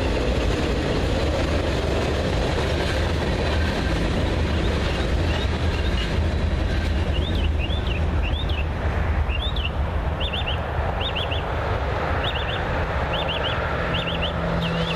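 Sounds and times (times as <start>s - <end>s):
highway traffic rumble: 0.0s - 14.9s
songbird chirping: 9.3s - 11.4s, 12.2s - 14.9s.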